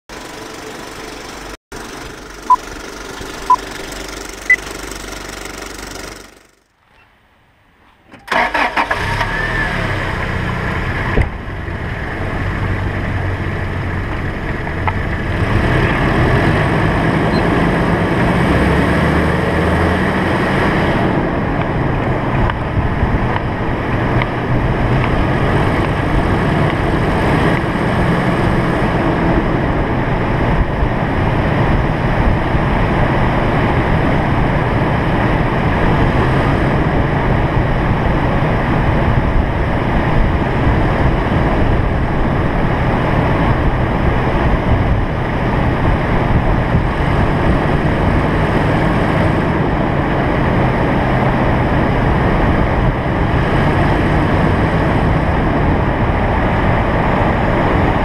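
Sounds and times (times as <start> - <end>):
road noise: 0.1 - 58.0
short electronic beeps: 2.5 - 2.7, 3.4 - 3.7, 4.4 - 4.8
rushing wind: 7.6 - 58.0.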